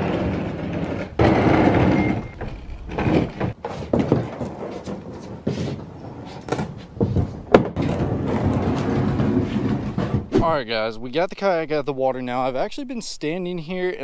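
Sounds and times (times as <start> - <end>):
plastic kayak hull scraping concrete: 0.0 - 10.4
knocks and bumps: 0.0 - 10.5
short squeak: 1.8 - 2.9.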